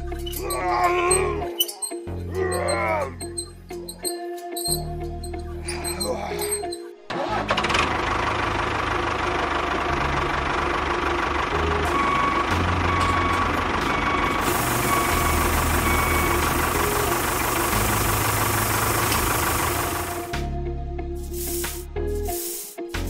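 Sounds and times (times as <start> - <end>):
small engine running: 14.0 - 20.3.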